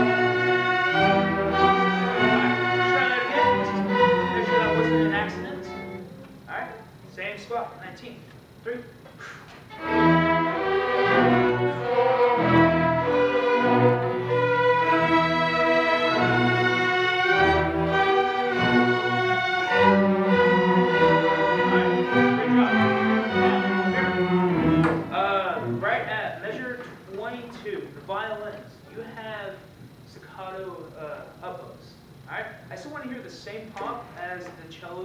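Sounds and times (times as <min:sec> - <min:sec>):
string orchestra playing: 0:00.0 - 0:06.6, 0:09.7 - 0:26.0.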